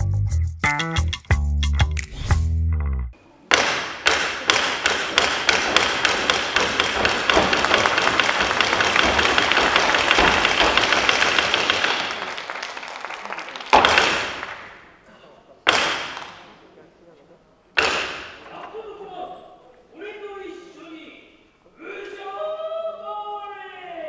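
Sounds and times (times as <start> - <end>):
wooden clappers clacking: 3.5 - 12.3.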